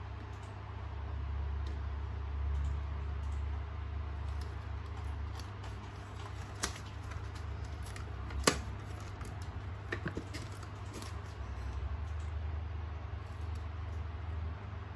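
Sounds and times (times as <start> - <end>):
steady low hum: 0.0 - 14.9
plastic handling noise: 4.2 - 11.8.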